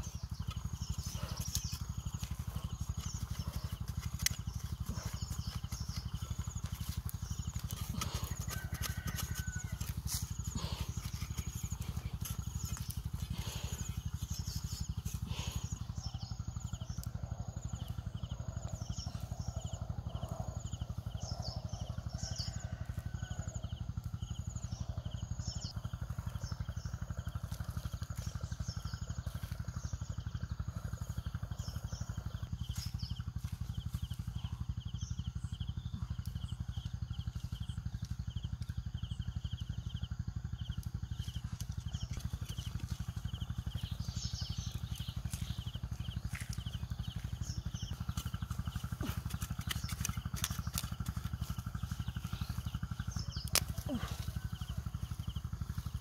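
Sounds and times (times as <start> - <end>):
small birds chirping: 0.0 - 56.0
steady low rumble: 0.0 - 56.0.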